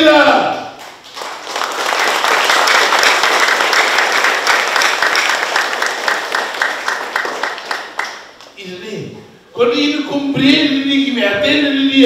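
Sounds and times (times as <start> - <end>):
audience applauding: 0.8 - 8.6.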